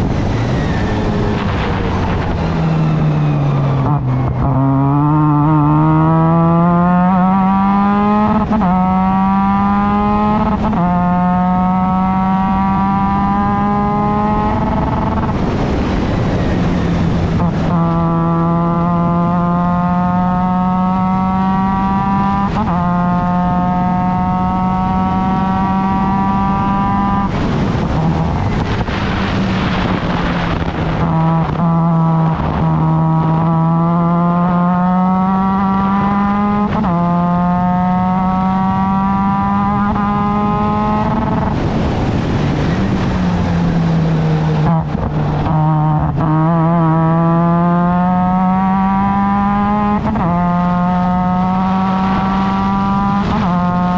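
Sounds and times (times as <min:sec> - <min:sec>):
harsh rushing noise: 0:00.0 - 0:04.4, 0:26.4 - 0:33.5
race car engine at full speed: 0:00.0 - 0:53.9.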